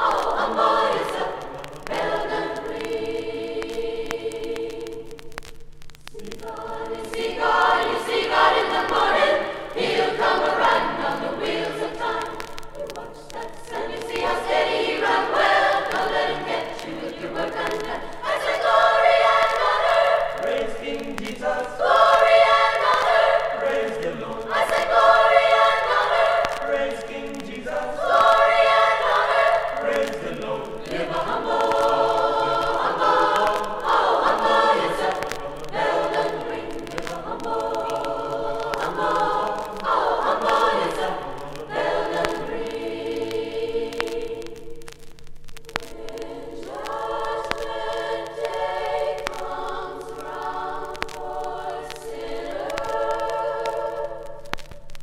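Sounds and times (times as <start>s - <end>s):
chorus singing: 0.0s - 45.0s, 45.6s - 55.0s.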